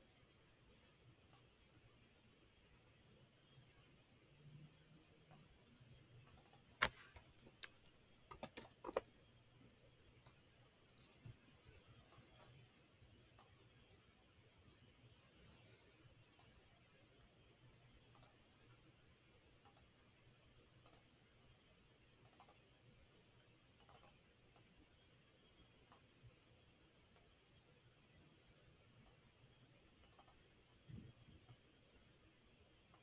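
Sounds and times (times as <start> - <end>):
computer mouse clicks: 0.8 - 1.5, 6.2 - 9.1, 12.0 - 12.6, 13.3 - 13.6, 16.4 - 16.6, 18.1 - 18.4, 19.6 - 19.9, 20.8 - 21.0, 22.2 - 22.6, 23.8 - 24.7, 25.9 - 26.1, 27.1 - 27.3, 30.0 - 30.4, 31.4 - 31.6.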